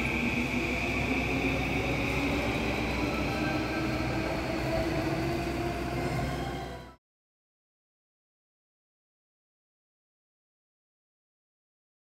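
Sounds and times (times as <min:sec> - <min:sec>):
train rumbling: 0:00.0 - 0:07.0.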